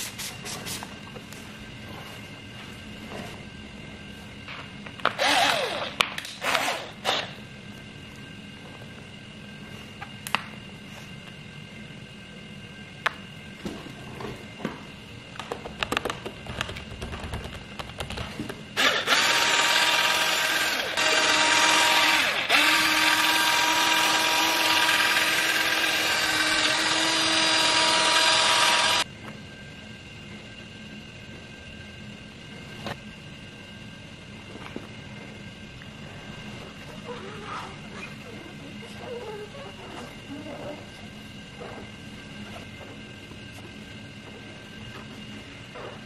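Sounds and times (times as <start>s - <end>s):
cordless drill polishing: 5.2s - 7.2s, 18.8s - 29.0s.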